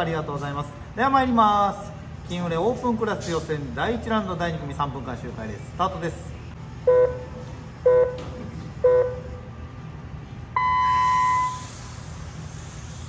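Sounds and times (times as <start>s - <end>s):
race start beeps: 10.6s - 11.9s.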